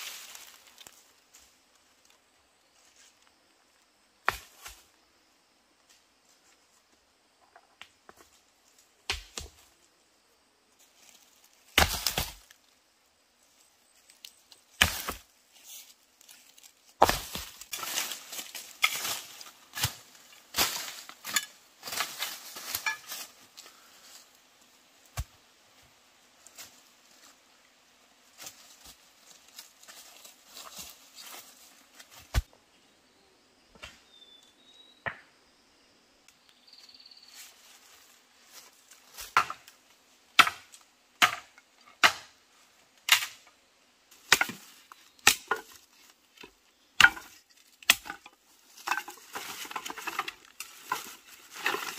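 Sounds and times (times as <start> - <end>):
dry leaves and sticks crackling: 0.0 - 3.4, 10.8 - 12.8, 13.4 - 32.5, 37.3 - 51.9.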